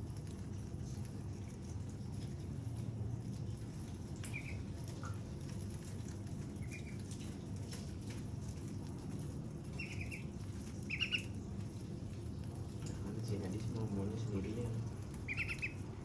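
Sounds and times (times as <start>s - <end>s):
steady low hum: 0.0s - 16.0s
duckling peeping: 4.2s - 4.7s, 6.5s - 7.1s, 9.7s - 11.5s, 15.2s - 16.0s.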